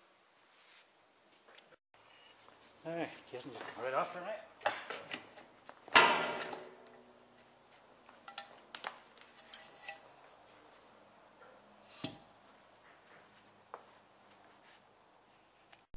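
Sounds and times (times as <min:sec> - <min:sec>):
loud metallic clang: 0:05.9 - 0:07.4.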